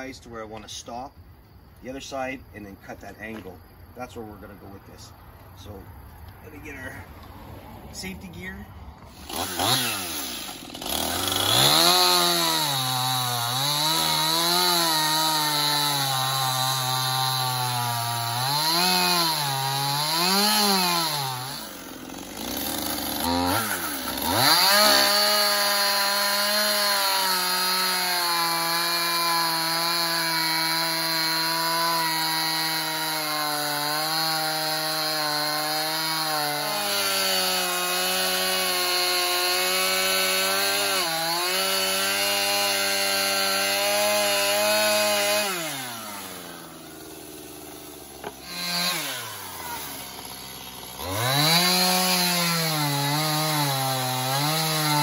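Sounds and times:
chainsaw cutting wood: 8.3s - 55.0s.

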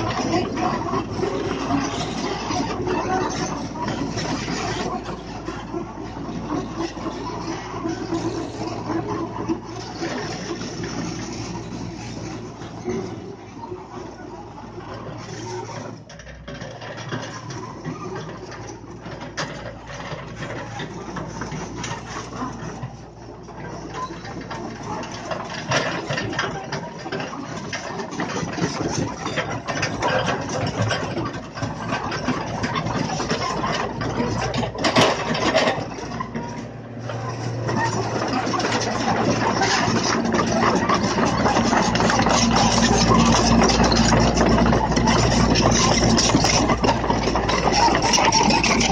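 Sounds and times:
excavator diesel engine: 0.0s - 48.9s
metal clanks and rattles: 23.4s - 48.9s.

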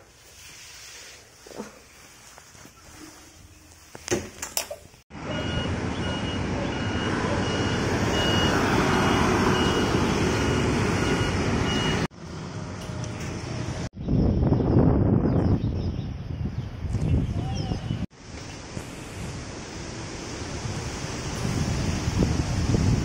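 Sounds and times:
road traffic noise: 3.9s - 14.1s, 17.9s - 23.0s.

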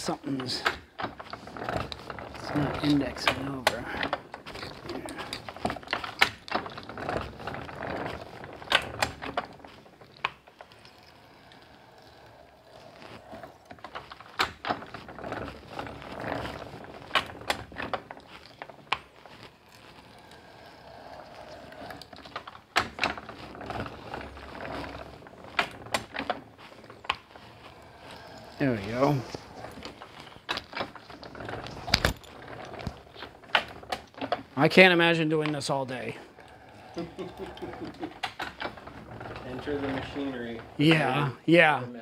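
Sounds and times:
hand planer mechanism clacking: 0.0s - 41.2s
rasping of metal planer: 36.2s - 40.8s.

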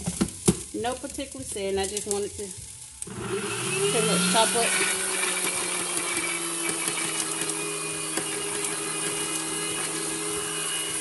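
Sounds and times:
blender motor running: 3.0s - 11.0s.

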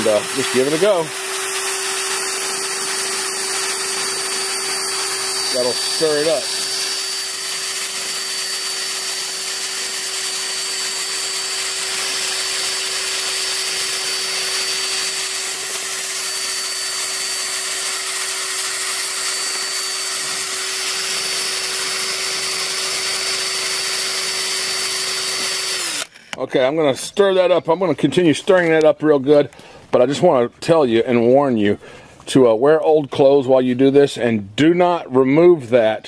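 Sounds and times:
electric drill stirring paint: 0.0s - 26.4s.

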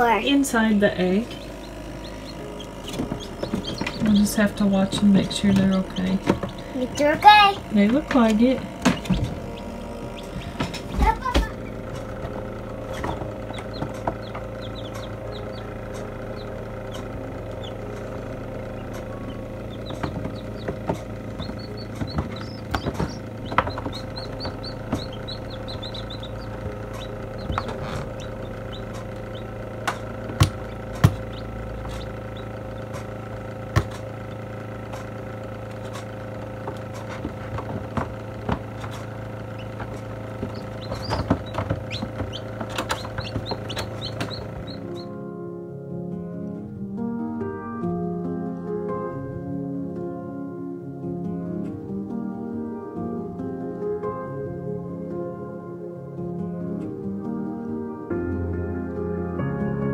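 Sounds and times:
computer fan humming: 0.0s - 45.4s
chicks peeping: 0.3s - 45.2s.

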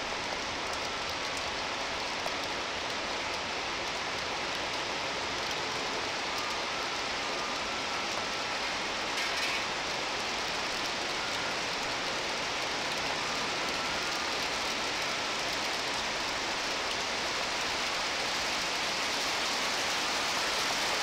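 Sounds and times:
heavy rain hiss: 0.0s - 21.0s
faint high-pitched tones: 5.4s - 21.0s.

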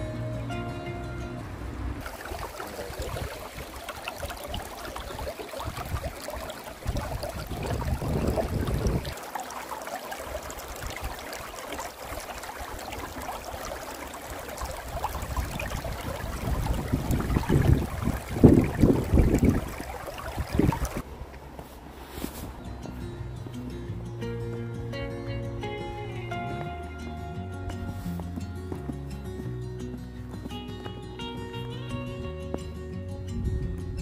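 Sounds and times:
wind buffeting the microphone: 2.0s - 9.2s, 10.7s - 21.3s, 33.2s - 34.0s.

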